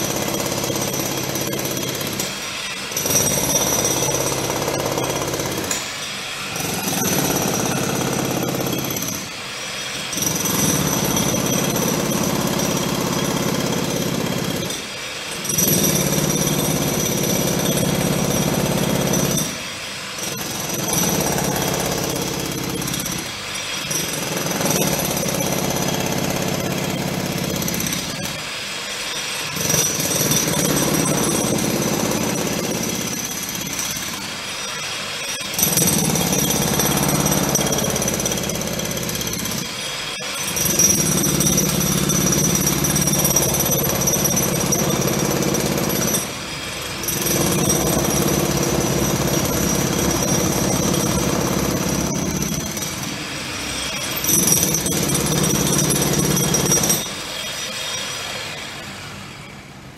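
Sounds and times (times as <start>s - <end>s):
road construction machinery: 0.0s - 59.9s.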